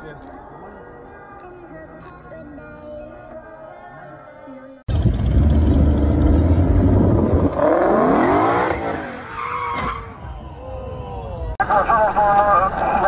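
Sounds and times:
car engine revving: 4.9s - 9.5s.

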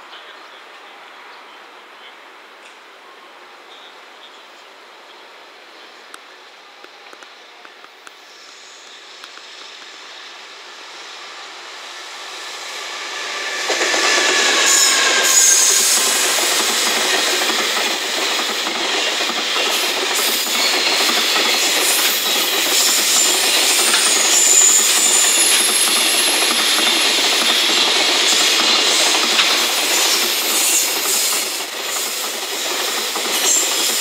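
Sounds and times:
locomotive whine: 5.8s - 31.7s
train wheels rumbling and clattering: 6.9s - 34.0s
high wheel squeals: 20.2s - 34.0s.

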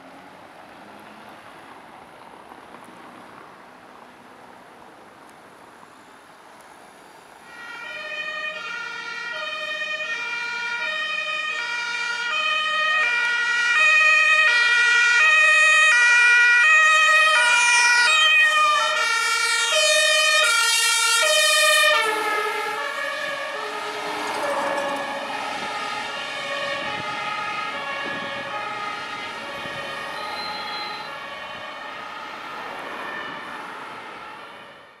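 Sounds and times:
fire engine two-tone siren: 7.4s - 35.0s.

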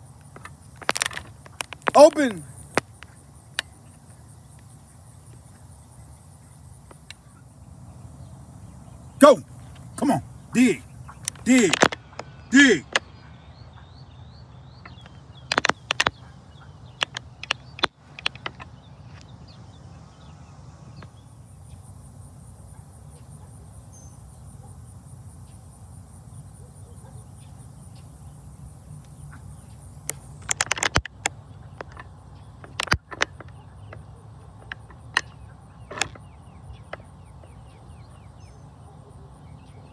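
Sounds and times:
high-pitched insect trill: 0.0s - 16.2s, 16.8s - 38.7s
low steady hum: 0.0s - 39.9s
sharp clicks and knocks: 0.2s - 3.8s, 11.2s - 13.1s, 14.8s - 16.2s, 17.0s - 19.3s, 30.0s - 36.2s.

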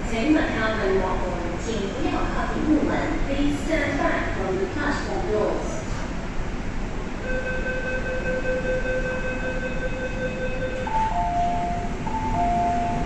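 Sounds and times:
steady electronic tone: 7.2s - 13.0s
two-note door chime: 7.8s - 13.0s.

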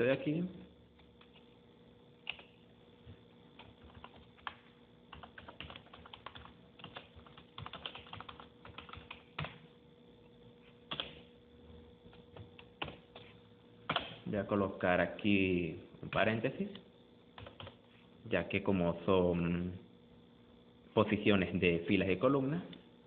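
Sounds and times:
keyboard typing: 2.2s - 2.6s, 3.6s - 9.6s, 10.9s - 11.2s, 12.1s - 13.3s, 17.4s - 17.8s.

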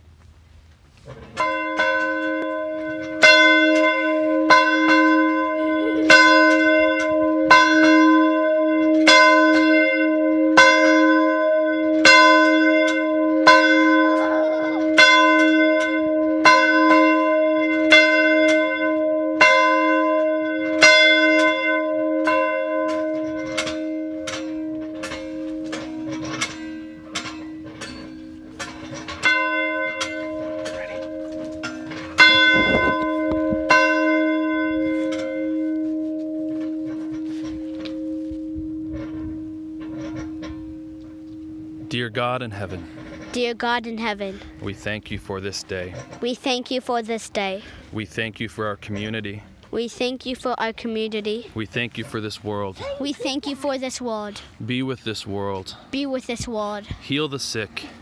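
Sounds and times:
church bell tolling: 1.3s - 46.2s.

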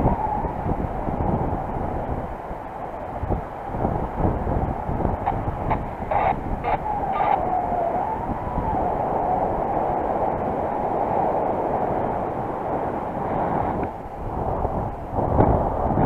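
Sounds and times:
wind rushing over microphone: 0.0s - 16.0s
faint wavering whistle: 6.1s - 9.8s.

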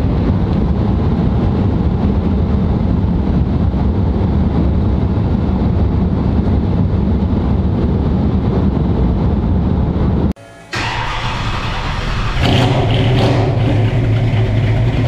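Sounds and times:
wind noise in car cabin: 0.0s - 11.2s
road and tyre rumble: 0.0s - 15.0s.

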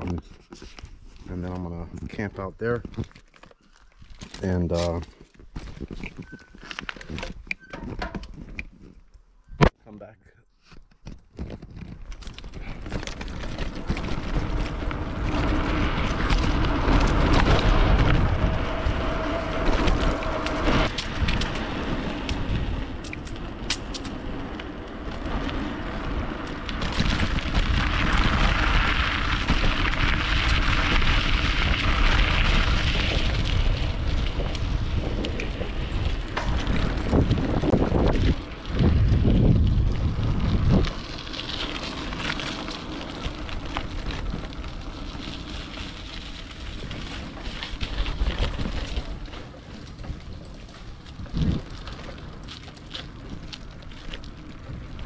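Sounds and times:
wind buffeting microphone: 11.5s - 52.5s.

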